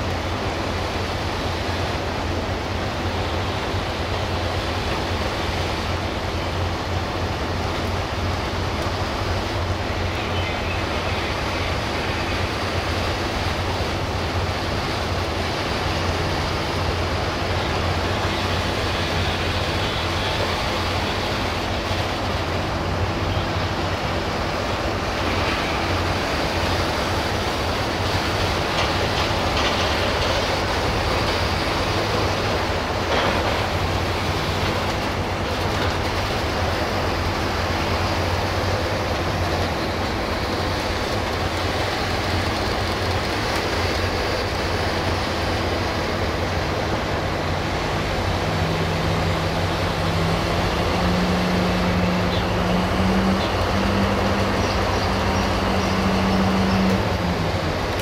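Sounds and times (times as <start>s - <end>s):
diesel shunter engine running: 0.0s - 58.0s
train wheels rolling on rails: 0.0s - 58.0s.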